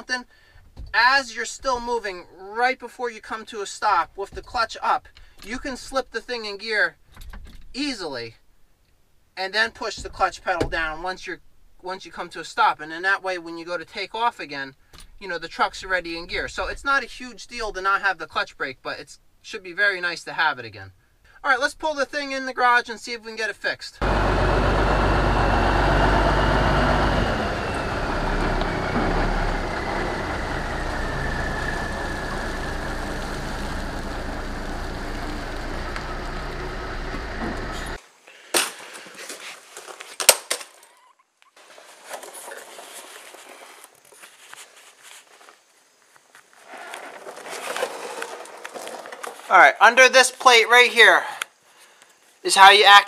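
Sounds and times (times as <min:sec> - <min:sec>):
diesel truck engine running: 0:24.0 - 0:38.0
high whine: 0:24.0 - 0:38.0
handling noises: 0:41.6 - 0:49.5.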